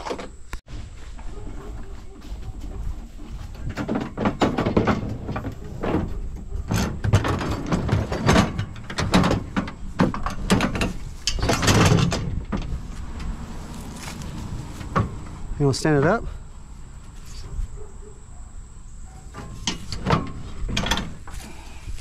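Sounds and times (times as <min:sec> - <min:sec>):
metal clanking and scraping: 0:01.1 - 0:15.7, 0:19.1 - 0:22.0.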